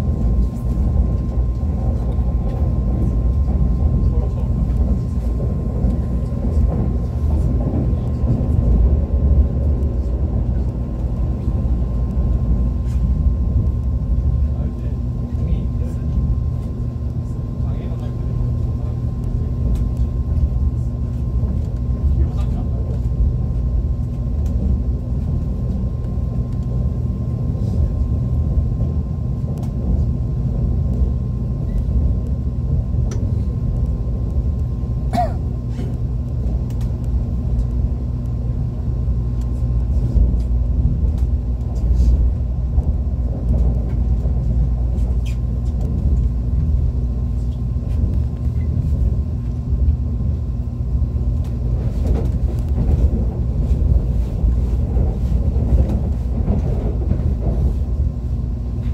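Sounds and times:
train wheels rumbling on track: 0.0s - 58.9s.

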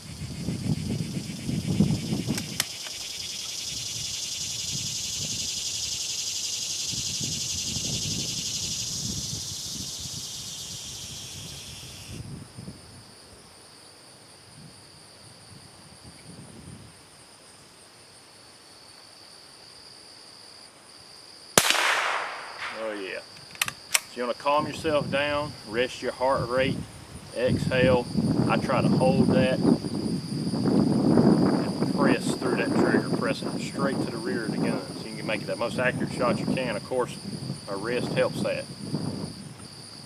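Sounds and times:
wind rumbling on microphone: 0.0s - 13.5s, 14.5s - 17.0s, 24.4s - 40.0s
faint high insect trill: 0.0s - 40.0s
insects buzzing chorus: 0.0s - 40.0s.

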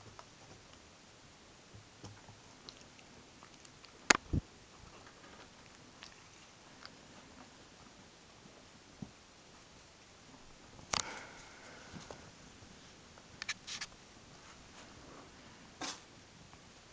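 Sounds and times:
kittens scratching on carpet: 13.4s - 13.9s.

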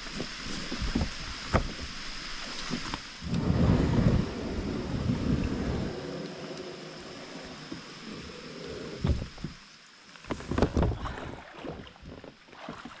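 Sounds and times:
wind noise on microphone: 0.0s - 2.0s, 2.7s - 6.2s, 9.0s - 9.6s
water washing: 0.0s - 13.0s
paddle splashing in water: 10.2s - 13.0s.

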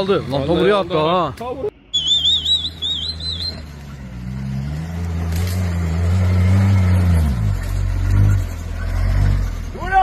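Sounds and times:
engine revving up a climb: 3.0s - 9.8s.

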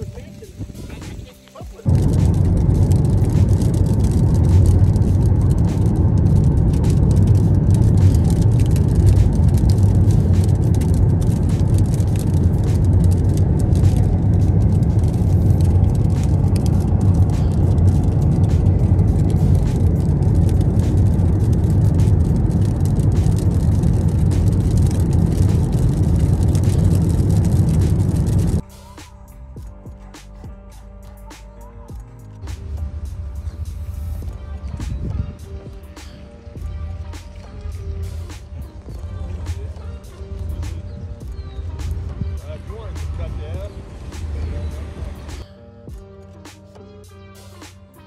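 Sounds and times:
car road noise rumble: 0.0s - 28.6s, 32.4s - 45.4s
hail pelting car roof: 0.0s - 28.6s.

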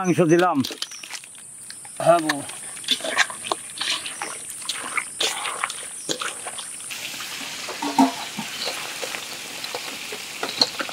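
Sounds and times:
wet squishes of marinating chicken: 2.0s - 6.9s
chicken frying in hot oil: 2.9s - 10.9s.

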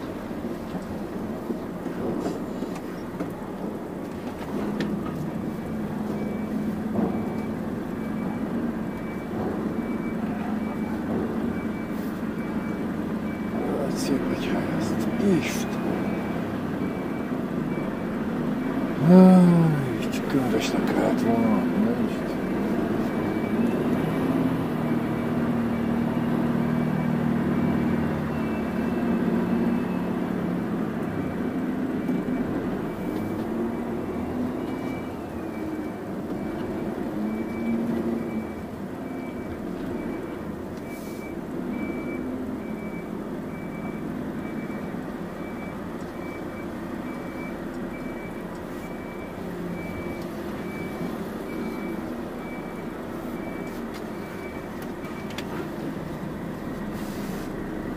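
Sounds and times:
truck diesel engine: 0.0s - 57.9s.

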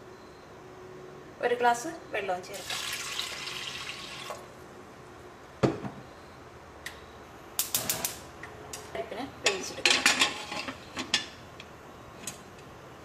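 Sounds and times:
water pouring into a pot: 2.6s - 4.5s.

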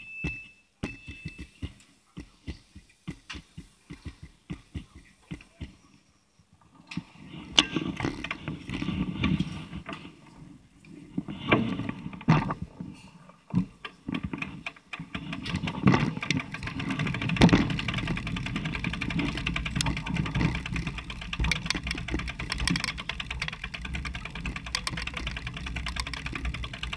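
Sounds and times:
bicycle knocks and bumps: 0.0s - 5.9s, 7.5s - 10.2s, 11.3s - 12.7s, 13.5s - 26.9s
bicycle ticking and rattling: 2.5s - 5.7s, 7.6s - 10.0s, 13.9s - 26.9s.

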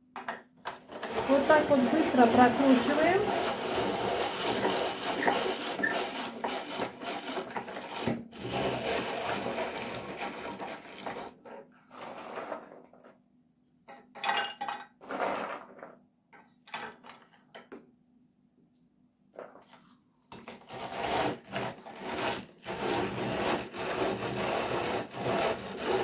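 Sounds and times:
rotary grater rasping walnuts: 0.9s - 11.3s, 20.5s - 26.0s.

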